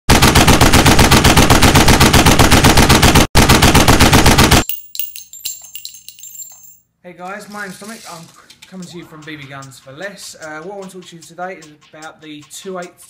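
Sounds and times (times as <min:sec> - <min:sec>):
rapid machine-gun fire: 0:00.1 - 0:04.6
light metallic clinks: 0:04.6 - 0:06.9.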